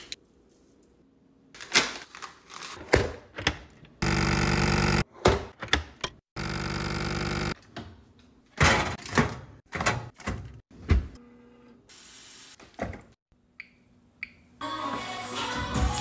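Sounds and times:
vacuum sealer pump buzzing: 0:04.0 - 0:05.0, 0:06.4 - 0:07.5
drawer opening and shutting: 0:08.6 - 0:11.2.

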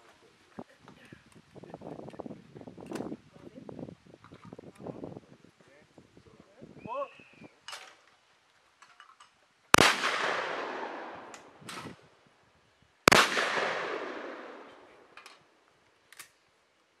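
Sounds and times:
small clicks and knocks: 0:08.8 - 0:09.4
shotgun shots echoing: 0:09.8 - 0:12.0, 0:13.1 - 0:15.4.

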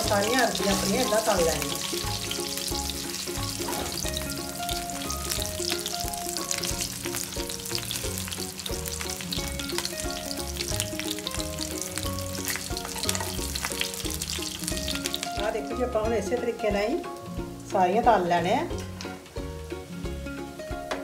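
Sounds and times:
spoon turning food in a pan: 0:00.0 - 0:15.6
taro frying in hot oil: 0:00.0 - 0:20.7.

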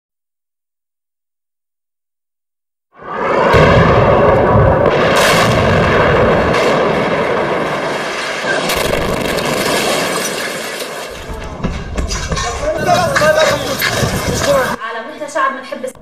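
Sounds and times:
explosion rumbling: 0:03.0 - 0:14.8
sharp cracks: 0:03.4 - 0:14.8.

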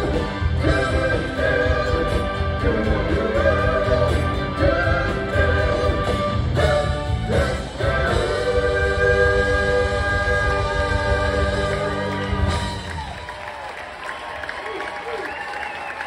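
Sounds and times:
person singing: 0:00.0 - 0:12.6
live rock band playing: 0:00.0 - 0:13.2.

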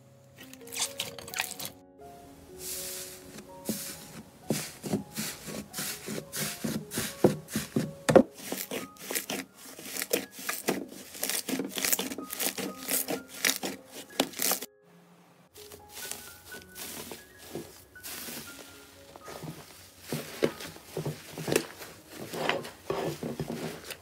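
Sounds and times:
sticky slime popping and crackling: 0:08.6 - 0:14.7.

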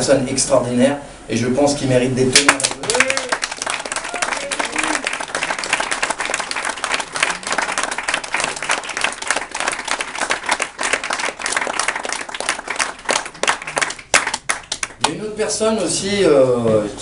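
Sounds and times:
audience clapping: 0:02.4 - 0:15.2.

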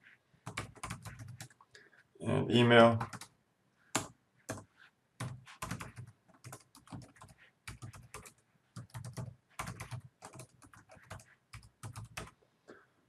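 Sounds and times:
computer keyboard typing: 0:00.5 - 0:01.6, 0:03.0 - 0:03.3, 0:04.0 - 0:12.3.

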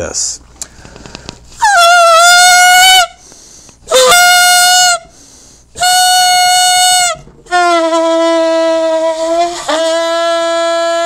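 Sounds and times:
balloon noisemaker honking: 0:01.6 - 0:03.2, 0:03.9 - 0:11.0.

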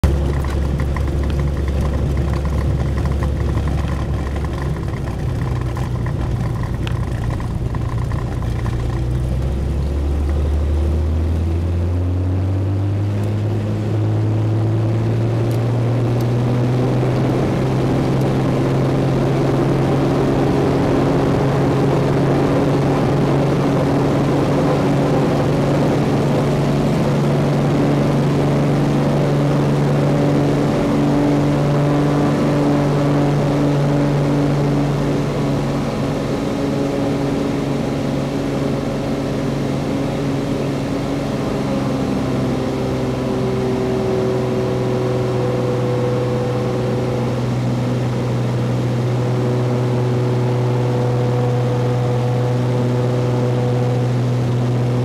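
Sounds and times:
wheels rolling on runway: 0:00.0 - 0:11.8
aircraft piston engine and propeller: 0:00.0 - 0:55.0
rush of wind: 0:00.0 - 0:55.0.

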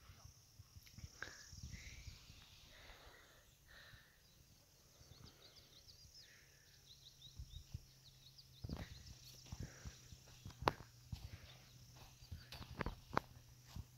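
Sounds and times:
small birds twittering: 0:00.0 - 0:13.9
footsteps on dry earth: 0:07.2 - 0:13.9.

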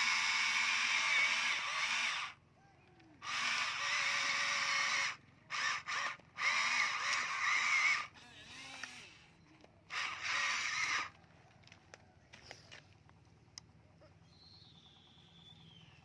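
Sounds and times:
electric motors whining: 0:00.0 - 0:16.0.

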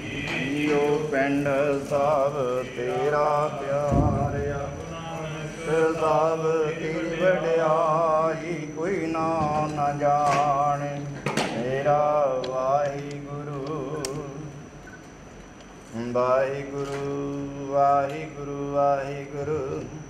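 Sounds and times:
man singing a hymn: 0:00.0 - 0:14.6, 0:15.9 - 0:20.0
steady low drone: 0:00.0 - 0:15.0.

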